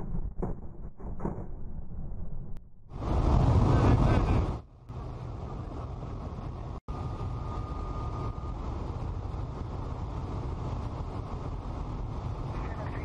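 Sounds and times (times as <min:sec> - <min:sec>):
light aircraft cabin noise: 0:03.6 - 0:13.0.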